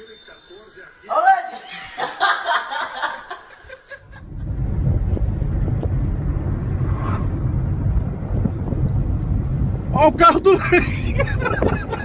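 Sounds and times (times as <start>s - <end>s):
car engine and road noise: 4.2s - 12.0s.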